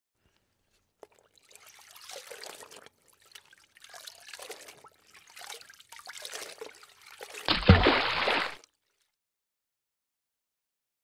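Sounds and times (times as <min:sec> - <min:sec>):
water trickling over stones: 0:00.6 - 0:09.2.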